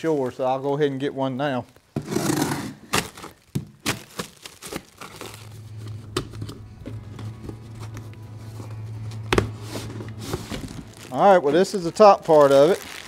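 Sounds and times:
plastic wrapping crinkling and tearing: 0:02.8 - 0:07.4, 0:09.5 - 0:13.0
low steady hum: 0:04.3 - 0:13.0.

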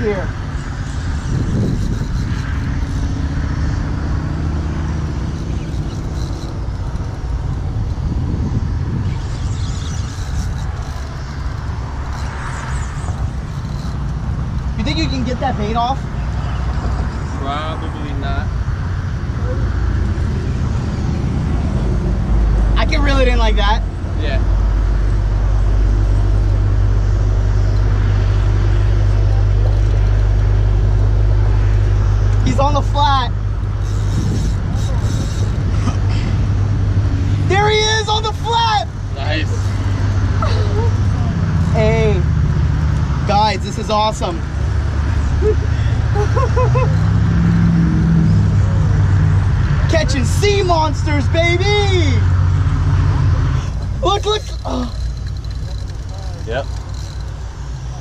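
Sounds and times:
wind buffeting microphone: 0:00.0 - 0:43.6
loud outdoor rumble: 0:00.0 - 0:58.0.

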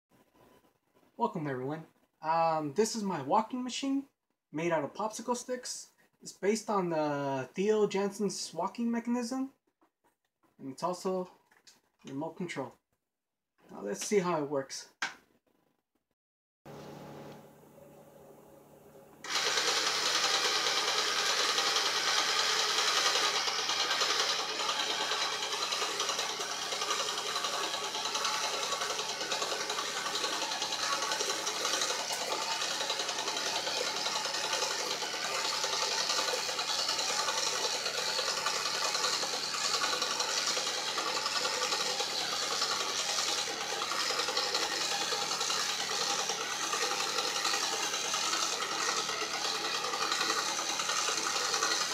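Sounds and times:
small electric motor running: 0:19.2 - 0:51.9.

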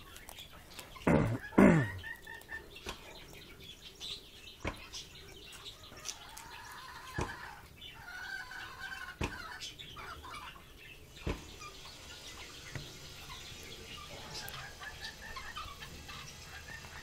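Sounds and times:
parrots clucking and chattering: 0:00.0 - 0:17.0.

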